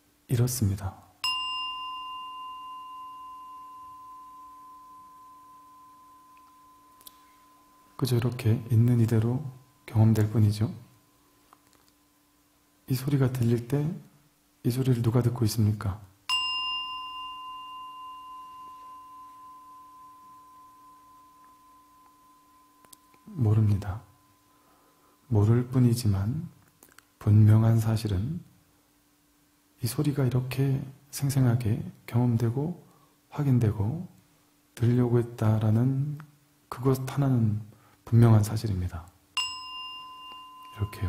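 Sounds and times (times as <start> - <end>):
bowl bell ringing: 1.2 - 11.4, 16.3 - 25.8, 39.4 - 41.0.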